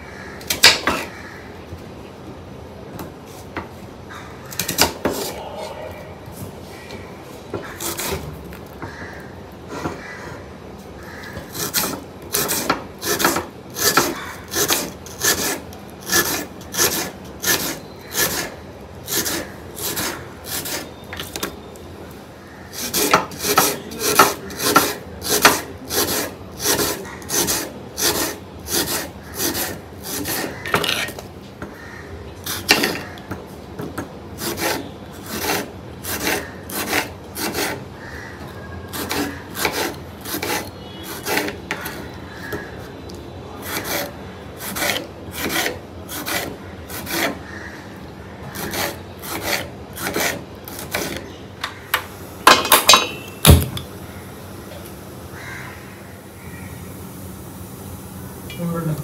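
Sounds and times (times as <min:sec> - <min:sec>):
rasping scraping strokes: 0:38.9 - 0:42.1, 0:43.6 - 0:47.5.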